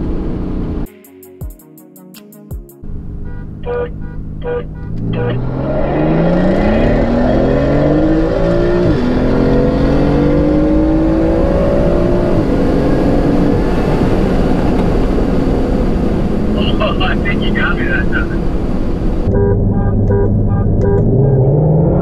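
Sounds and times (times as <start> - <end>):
sports car engine accelerating: 2.8 - 22.0
car horn honks: 3.1 - 5.6, 19.3 - 21.4.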